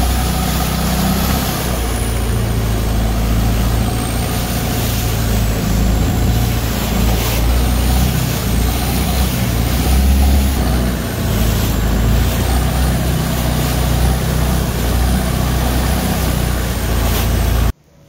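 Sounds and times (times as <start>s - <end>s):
boat engine droning: 0.0s - 18.0s
rushing water noise: 0.0s - 18.0s.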